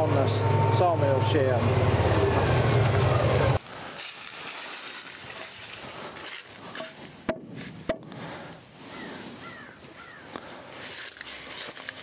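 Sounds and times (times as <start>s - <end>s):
low motor hum: 0.0s - 3.6s.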